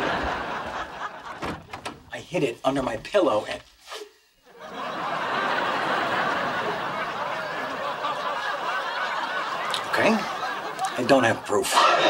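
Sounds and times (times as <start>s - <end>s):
audience laughing: 0.0s - 1.8s, 4.5s - 12.0s.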